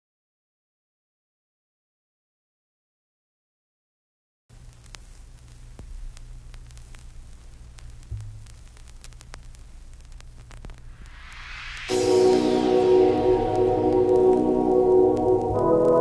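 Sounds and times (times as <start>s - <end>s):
faint crackles: 4.5s - 16.0s
steady low hum with hiss: 4.5s - 16.0s
whooshing swell: 10.9s - 15.0s.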